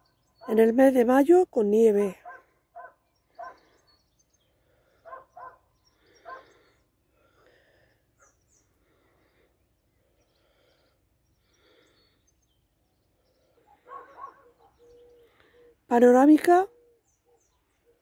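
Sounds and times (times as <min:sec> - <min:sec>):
faint outdoor sounds: 0:00.0 - 0:18.0
faint animal calls: 0:02.2 - 0:09.5, 0:13.1 - 0:15.9.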